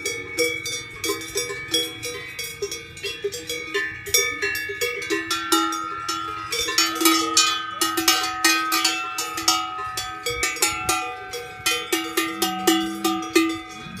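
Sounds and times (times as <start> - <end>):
cowbells clanging: 0.0 - 14.0.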